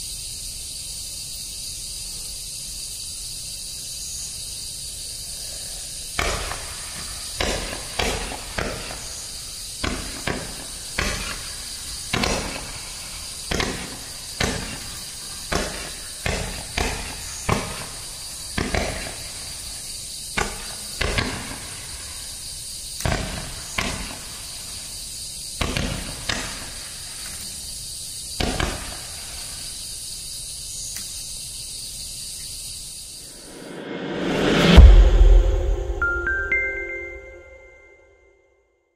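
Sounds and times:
steady high hiss: 0.0s - 38.0s.

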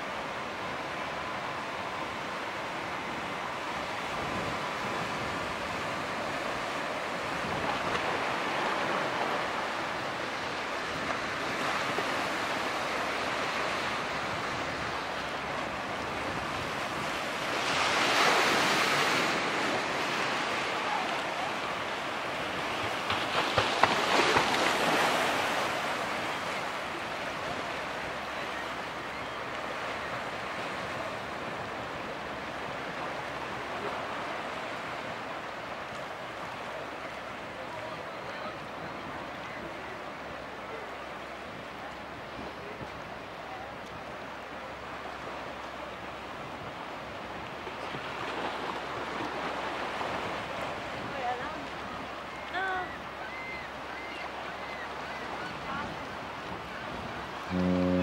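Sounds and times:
water splashing against pier wall: 20.4s - 26.2s.

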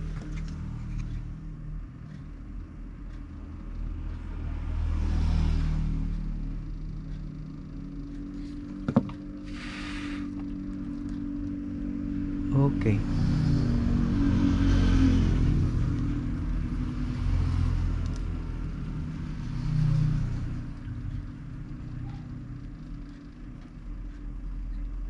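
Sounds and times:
heat gun fan humming: 8.4s - 11.1s
air hissing: 9.4s - 10.4s.

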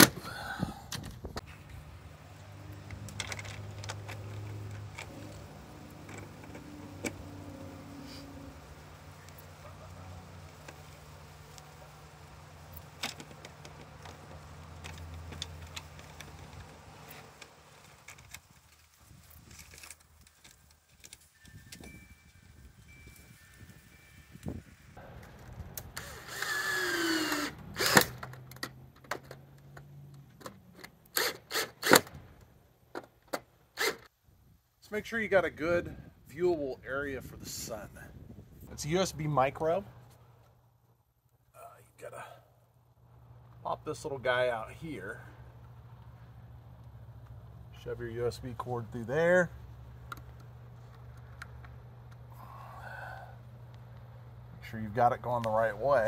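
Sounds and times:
cordless drill driving screw: 25.8s - 28.4s, 31.1s - 32.1s.

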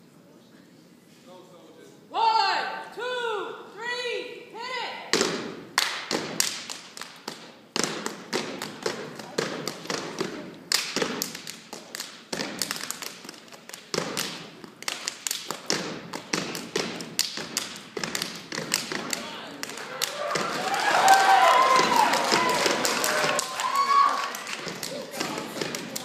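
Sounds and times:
hands clapping: 5.8s - 26.0s
boots stomping on stage floor: 21.6s - 23.3s.

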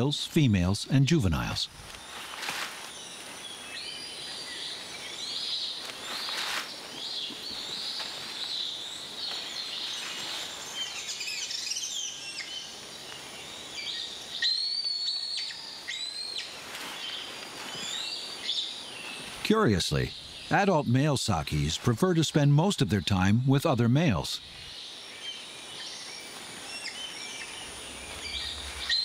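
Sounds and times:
birds calling and chirping: 0.0s - 29.0s
insect hum: 0.0s - 29.0s
sharp high whistled calls: 13.8s - 18.8s, 25.3s - 29.0s.

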